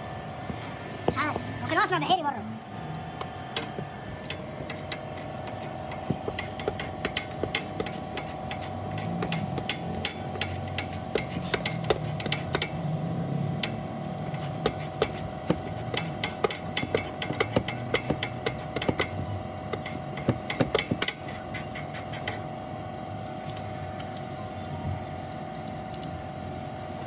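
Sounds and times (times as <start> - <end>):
steady hum: 0.0 - 27.0
ratchet wrench clicking: 3.2 - 12.8, 13.6 - 22.4.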